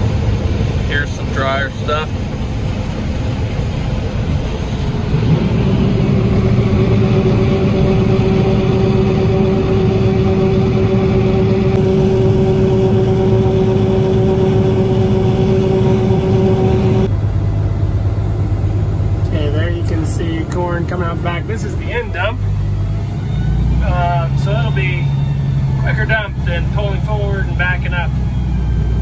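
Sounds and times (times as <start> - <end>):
farm machinery: 0.0 - 22.4
combine harvester engine drone: 0.0 - 29.0
steady whine: 0.0 - 29.0.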